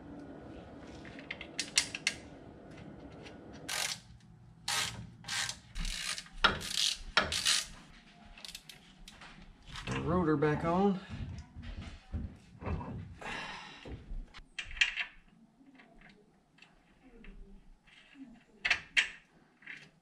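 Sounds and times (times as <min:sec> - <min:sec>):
hand ratchet clicking: 0:03.7 - 0:04.0, 0:04.7 - 0:07.7.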